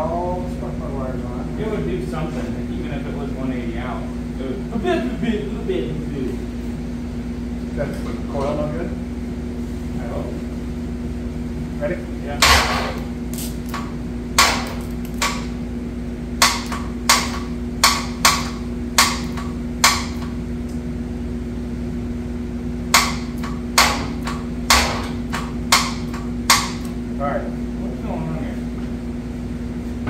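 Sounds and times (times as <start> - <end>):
low hum: 0.0 - 28.0
hammer blows: 12.4 - 13.1, 23.8 - 26.8.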